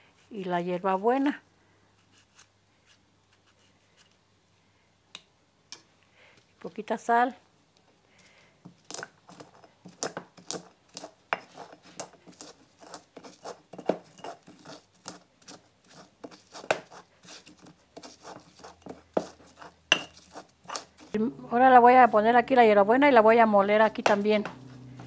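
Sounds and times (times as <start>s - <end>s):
stone pestle grinding in mortar: 8.9s - 21.2s.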